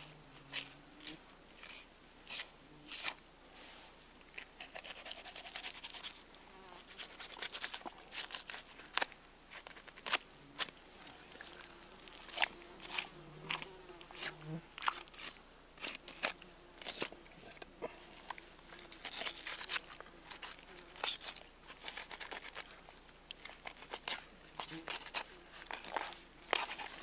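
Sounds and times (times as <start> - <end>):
crackling and scraping: 6.9 - 27.0
knife cutting meat: 19.0 - 22.7, 23.5 - 27.0.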